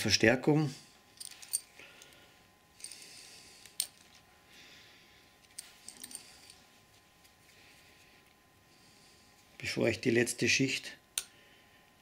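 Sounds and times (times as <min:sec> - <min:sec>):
metal screws clicking and clinking: 0:01.2 - 0:01.7, 0:05.4 - 0:06.6.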